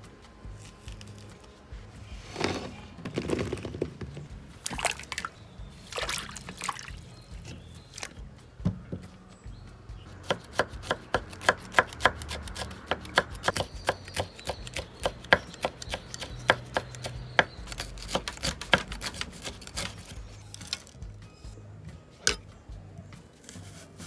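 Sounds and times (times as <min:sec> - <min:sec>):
knife chopping on wooden board: 0:10.2 - 0:20.1.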